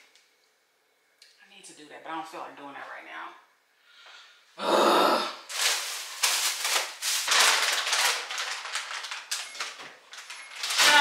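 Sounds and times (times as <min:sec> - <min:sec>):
plastic packages crinkling: 0:05.5 - 0:11.0.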